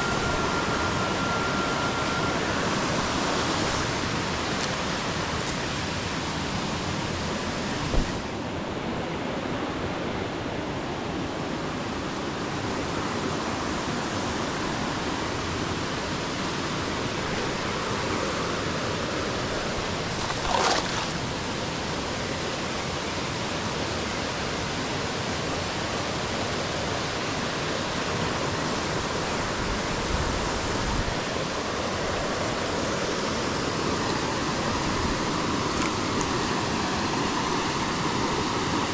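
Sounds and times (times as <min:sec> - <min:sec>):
creek water rushing over stones: 0:12.0 - 0:38.9.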